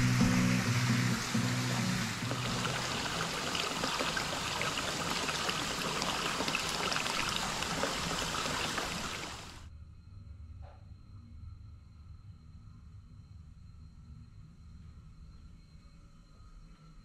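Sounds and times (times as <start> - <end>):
water pouring into a bath: 0.0 - 9.6.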